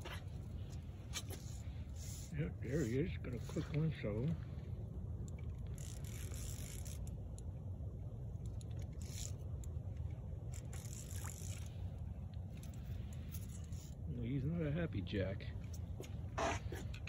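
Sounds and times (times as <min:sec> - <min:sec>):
hissy scraping sounds: 0:00.0 - 0:04.4
steady low rumble: 0:00.0 - 0:17.0.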